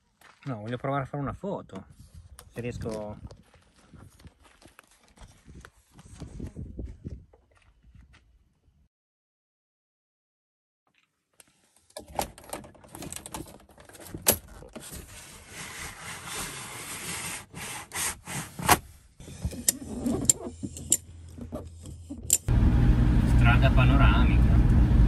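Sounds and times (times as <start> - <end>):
objects rattling and knocking: 12.0 - 15.1
low steady hum: 20.9 - 25.0.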